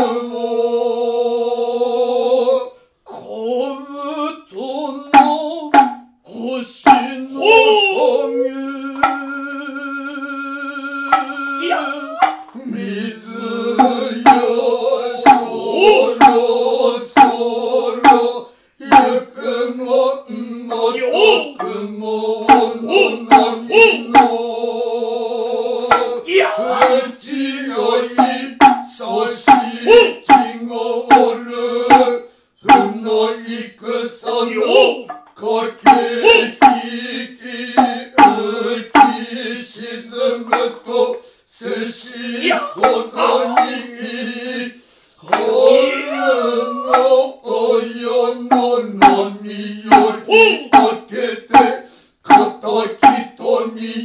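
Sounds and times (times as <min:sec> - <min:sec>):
man chanting: 0:00.0 - 0:54.0
hand drum strokes: 0:05.2 - 0:06.1, 0:09.0 - 0:09.3, 0:11.1 - 0:12.5, 0:13.8 - 0:14.5, 0:22.5 - 0:24.4, 0:31.1 - 0:33.0, 0:35.9 - 0:36.9, 0:39.0 - 0:39.2, 0:42.8 - 0:43.9, 0:48.5 - 0:49.2.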